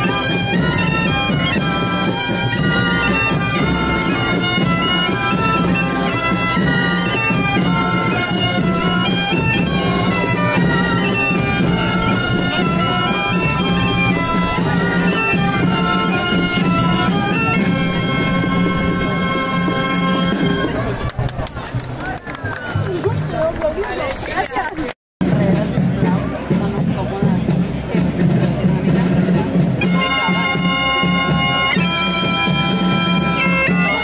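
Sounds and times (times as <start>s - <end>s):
bagpipes playing: 0.0s - 20.9s, 29.8s - 34.0s.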